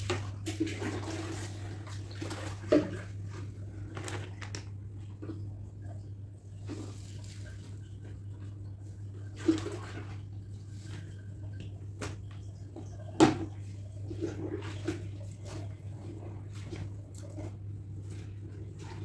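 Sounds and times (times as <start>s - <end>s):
steady low hum: 0.0s - 19.0s
water sloshing: 0.0s - 19.0s.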